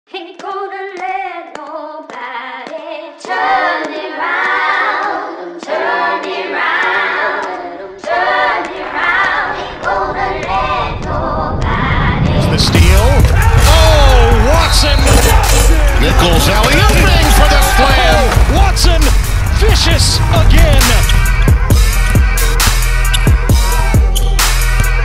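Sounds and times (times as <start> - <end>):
a cappella choir singing: 1.7 - 12.7.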